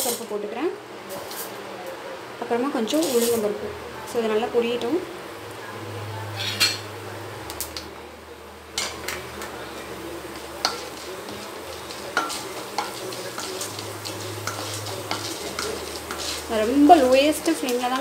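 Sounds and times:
seeds sizzling in hot oil: 0.0 - 1.6, 2.4 - 18.0
wooden spatula stirring: 8.8 - 18.0.

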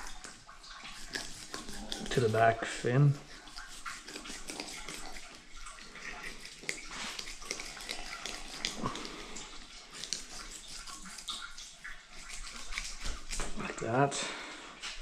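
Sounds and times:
knife scraping through fish flesh: 0.0 - 13.6
blade ticking over fish bones: 3.3 - 13.6.

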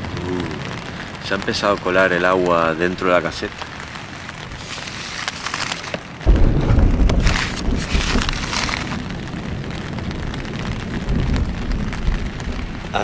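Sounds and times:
heavy rain on tent fabric: 0.0 - 13.0
deep rumble of thunder: 6.2 - 13.0.

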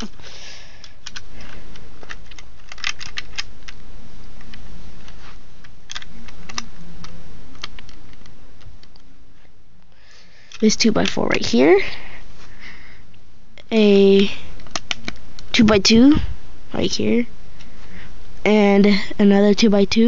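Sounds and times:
plastic bricks clicking: 2.0 - 3.8.

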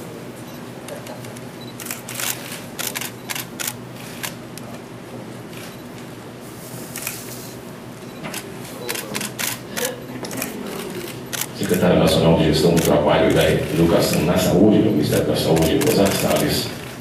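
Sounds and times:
steady low hum: 0.0 - 17.0
camera shutters clicking: 1.2 - 4.4, 7.0 - 7.2, 8.3 - 11.8, 12.7 - 14.4, 15.1 - 17.0.

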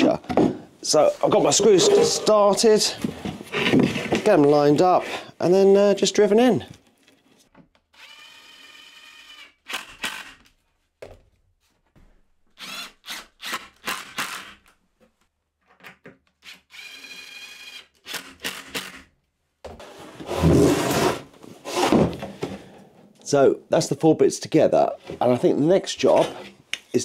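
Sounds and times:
impact driver whirring: 8.0 - 10.4, 12.6 - 14.6, 16.5 - 19.1.

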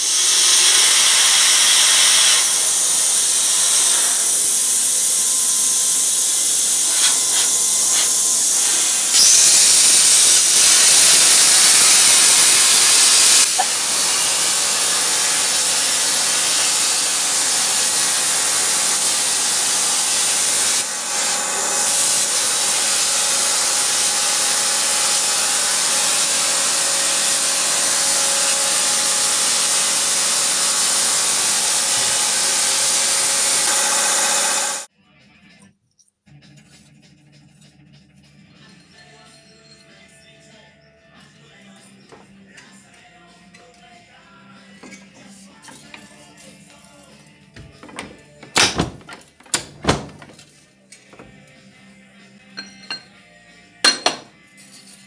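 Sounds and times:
plasma torch hissing: 0.0 - 34.9.

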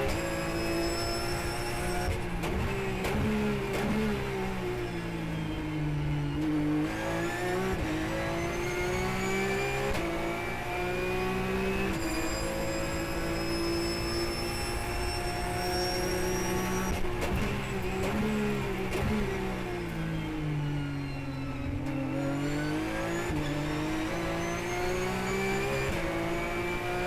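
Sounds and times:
race car engine revving: 6.5 - 20.0, 21.9 - 27.0.

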